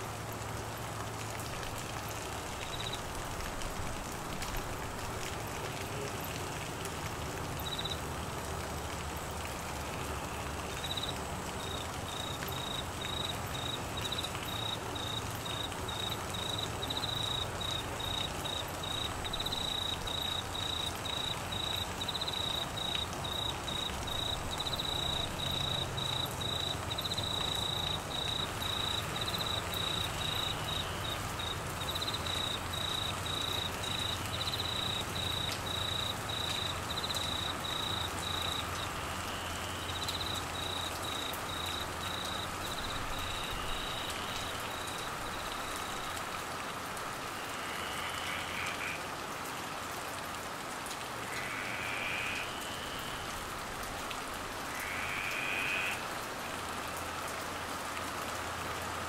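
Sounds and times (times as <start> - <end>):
heavy rain on foliage: 0.0 - 59.0
cricket chirping: 7.6 - 8.0, 10.8 - 46.2.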